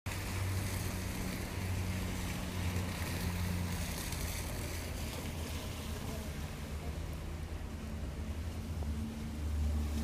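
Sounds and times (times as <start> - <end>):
rainwater flowing along a curb: 0.1 - 10.0.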